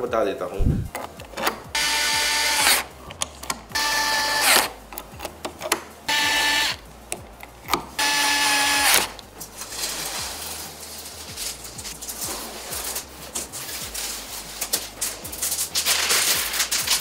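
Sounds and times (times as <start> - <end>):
small electric motor whirring: 1.7 - 2.9, 3.7 - 4.8, 6.1 - 6.8, 8.0 - 9.2.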